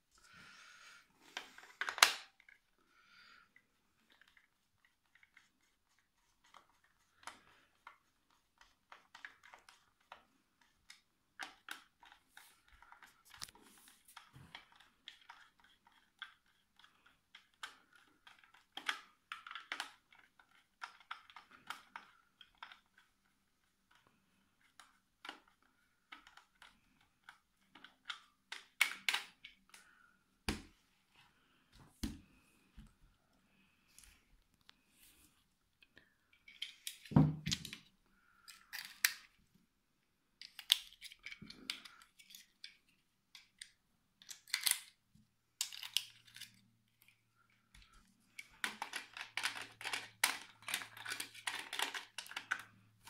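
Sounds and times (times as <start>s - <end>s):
plastic clicks and scrapes: 4.0s - 30.0s, 45.6s - 53.0s.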